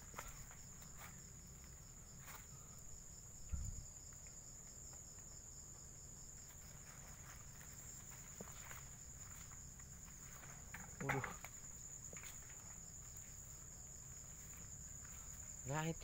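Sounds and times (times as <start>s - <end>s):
crickets trilling: 0.0s - 16.0s
dull low thump: 3.4s - 3.9s
faint rustles: 6.5s - 15.6s.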